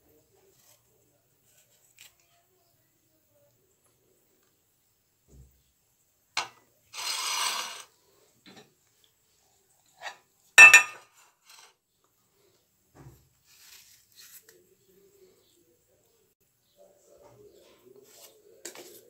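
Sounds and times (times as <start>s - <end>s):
short scrape: 6.9s - 7.9s
metal pot clanging on stone: 10.0s - 11.1s.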